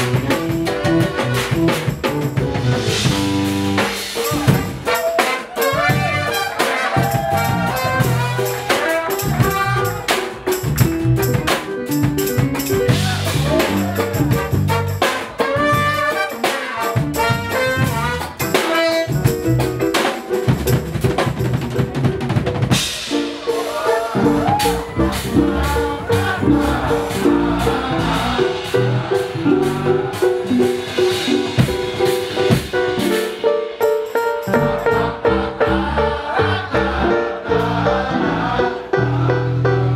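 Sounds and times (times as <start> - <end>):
saxophone and trumpets: 0.0 - 2.0, 2.9 - 10.6, 12.9 - 20.1
electric bass line: 0.0 - 4.9, 5.8 - 16.2, 17.0 - 22.9, 24.2 - 33.1, 34.5 - 39.9
drum kit beat: 0.0 - 39.2.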